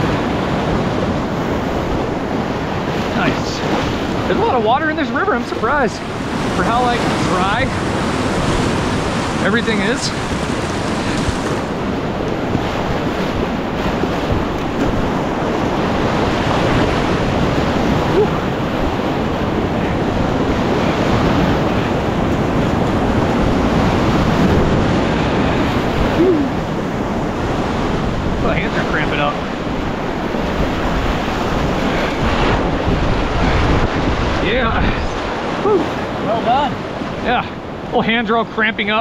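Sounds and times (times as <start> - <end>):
river rushing over rapids: 0.0 - 39.0.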